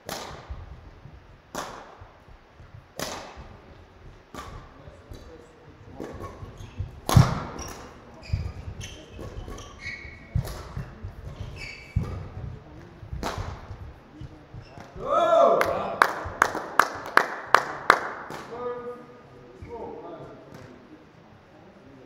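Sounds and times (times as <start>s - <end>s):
rackets hitting shuttlecock: 0.0s - 0.6s, 1.5s - 2.0s, 3.0s - 3.6s, 4.3s - 12.4s, 13.1s - 13.8s
shoes squeaking on court floor: 4.4s - 15.0s.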